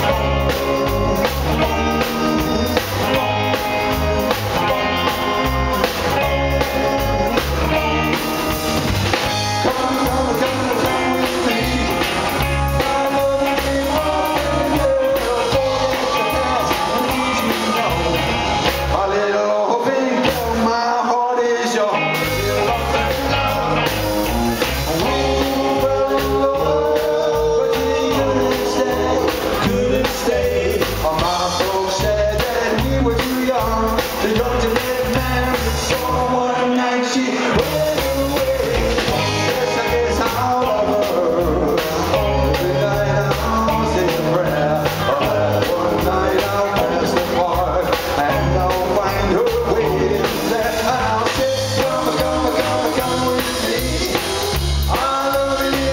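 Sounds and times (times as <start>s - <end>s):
upright double bass: 0.0s - 19.2s, 22.0s - 36.6s, 37.5s - 55.9s
drums: 0.0s - 55.9s
electric guitar: 0.0s - 55.9s
person singing: 0.0s - 55.9s.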